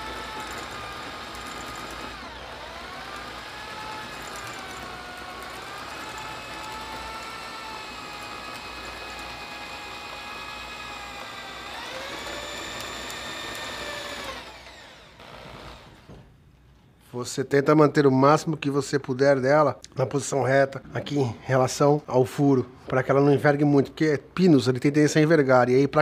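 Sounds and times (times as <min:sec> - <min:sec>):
electric drill whining: 0:00.0 - 0:16.3.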